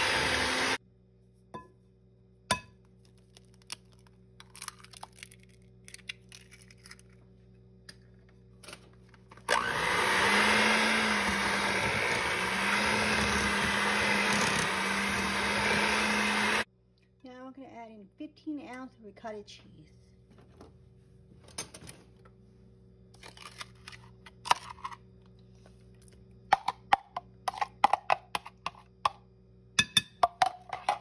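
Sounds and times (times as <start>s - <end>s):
electric hand mixer whirring: 0.0s - 0.8s, 9.5s - 16.7s.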